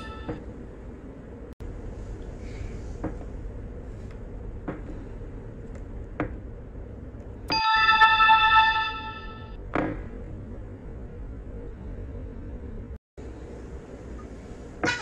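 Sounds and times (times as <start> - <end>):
low steady hum: 0.0 - 15.0
bright electronic chime: 7.5 - 9.6.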